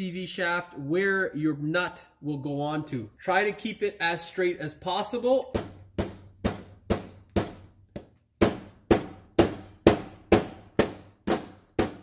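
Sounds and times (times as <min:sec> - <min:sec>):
mallet striking metal shaft: 0:05.5 - 0:12.0.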